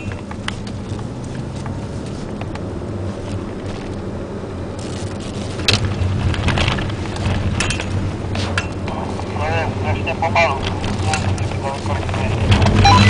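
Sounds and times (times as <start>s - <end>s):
car engine running: 0.0s - 13.0s
tyre and road noise: 0.0s - 13.0s
light clicks and rattles: 4.8s - 9.4s.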